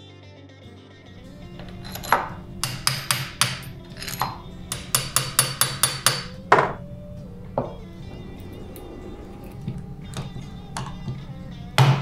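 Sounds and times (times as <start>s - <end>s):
small hammer tapping metal: 1.2s - 6.8s.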